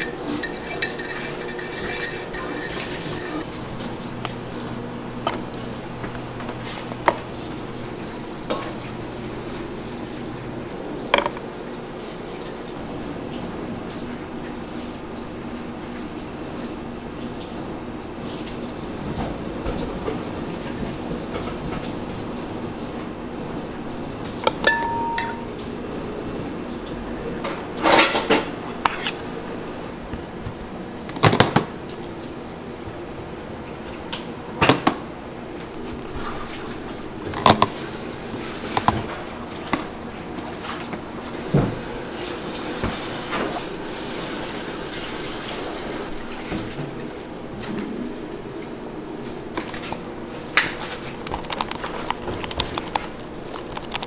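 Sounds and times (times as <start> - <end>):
spatula scraping buttercream: 0.0 - 3.5.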